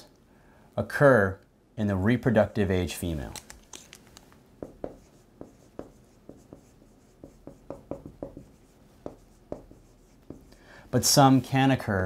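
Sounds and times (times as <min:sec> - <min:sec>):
marker writing on whiteboard: 0:03.7 - 0:10.6.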